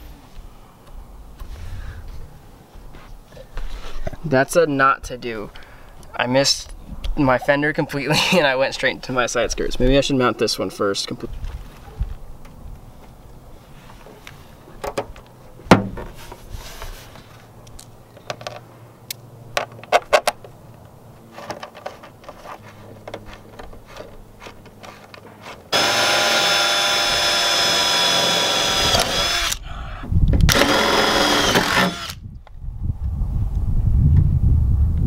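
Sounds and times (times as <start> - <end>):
cordless drill drilling: 25.7 - 29.6, 30.5 - 32.2.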